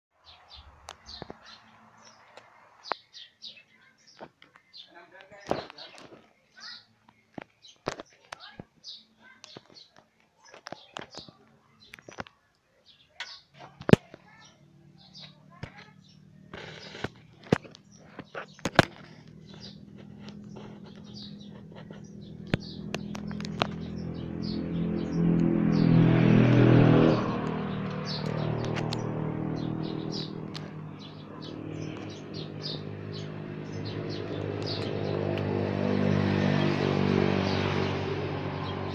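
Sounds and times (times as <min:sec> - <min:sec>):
birds chirping: 0:00.2 - 0:38.9
car engine running: 0:16.4 - 0:38.9
sharp clicks: 0:16.5 - 0:24.2, 0:27.4 - 0:29.1.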